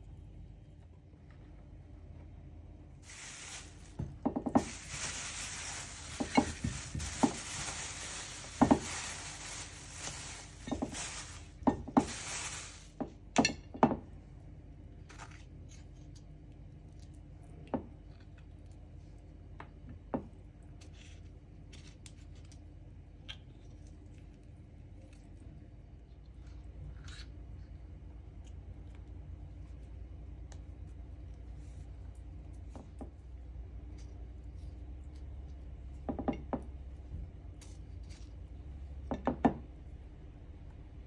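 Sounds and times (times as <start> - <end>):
plastic bag crinkling: 3.0 - 13.0.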